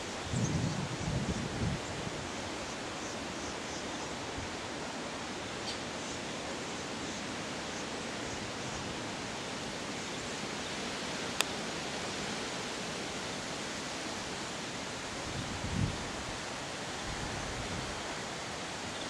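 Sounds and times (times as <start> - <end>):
high wind blowing: 0.0 - 2.6, 15.0 - 18.6.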